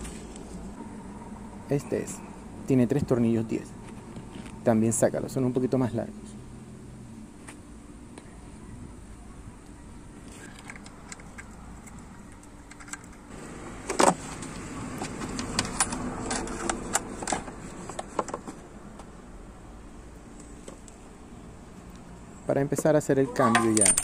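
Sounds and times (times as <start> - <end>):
metal bolts clinking: 23.4 - 24.0.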